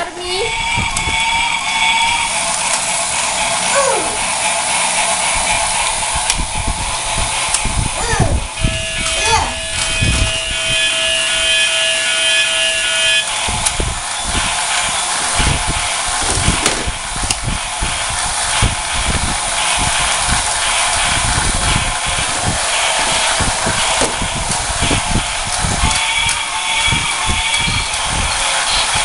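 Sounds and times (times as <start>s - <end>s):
mechanical grinding noise: 0.0s - 29.0s
toy train electric buzz: 0.0s - 29.0s
plastic knocks and clatters: 23.0s - 24.6s.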